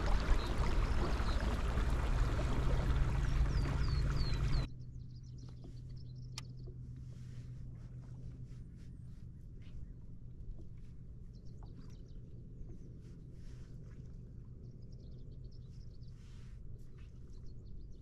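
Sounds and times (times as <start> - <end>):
water and wind rushing: 0.0 - 4.7
birds chirping: 0.0 - 6.8
kayak motor hum: 0.0 - 15.5.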